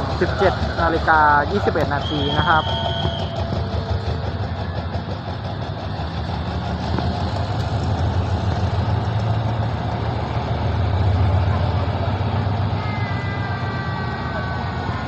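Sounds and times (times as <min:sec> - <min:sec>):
diesel locomotive running: 0:00.0 - 0:15.0
train coaches rolling past: 0:00.0 - 0:15.0.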